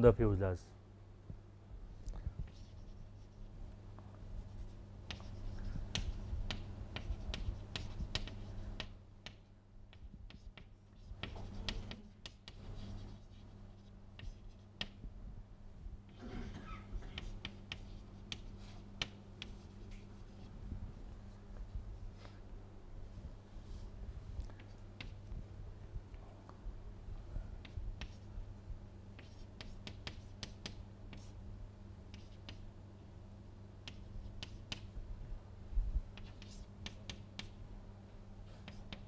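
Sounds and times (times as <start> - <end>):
low electrical hum: 0.0 - 39.0
chalk tapping and scraping on board: 4.6 - 15.0, 17.1 - 20.1, 29.2 - 31.4, 32.1 - 32.6, 33.8 - 34.9, 36.2 - 37.6, 38.6 - 39.0.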